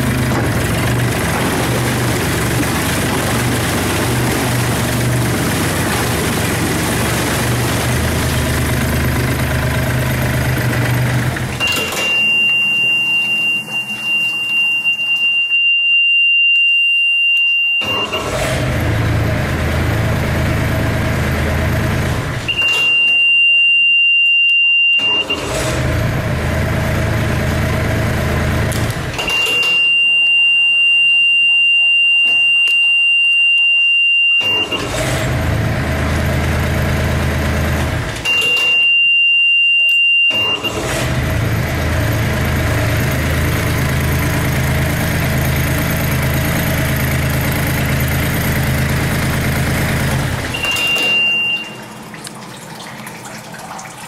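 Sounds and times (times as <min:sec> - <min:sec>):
outboard engine running: 0:00.0 - 0:14.7, 0:40.6 - 0:52.5
warning buzzer beep: 0:11.6 - 0:18.3, 0:22.5 - 0:25.5, 0:29.2 - 0:34.8, 0:38.3 - 0:40.8, 0:50.5 - 0:52.0.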